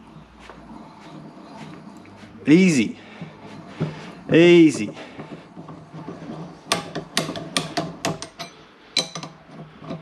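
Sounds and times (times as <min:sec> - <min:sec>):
metallic clinks and taps: 0:06.7 - 0:09.4.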